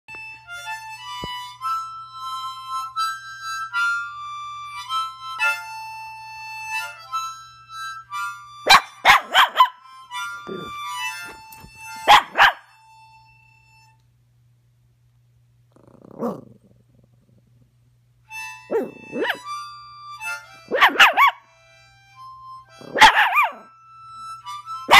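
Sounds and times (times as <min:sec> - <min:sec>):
harmonica playing slow tune: 0:00.1 - 0:09.1, 0:09.8 - 0:14.3, 0:18.2 - 0:24.9
small dog barking: 0:08.7 - 0:09.8, 0:12.0 - 0:12.7, 0:16.2 - 0:16.5, 0:18.7 - 0:19.4, 0:20.7 - 0:21.4, 0:22.8 - 0:23.7.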